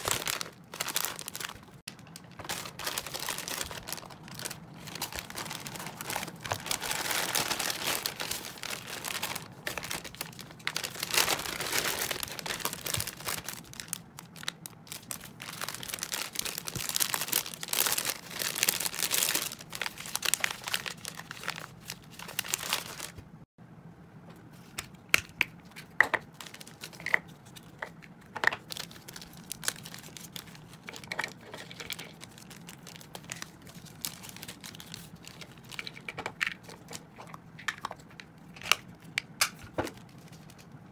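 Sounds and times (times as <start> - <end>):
plastic packaging crinkling: 0.0 - 23.2, 26.2 - 40.7.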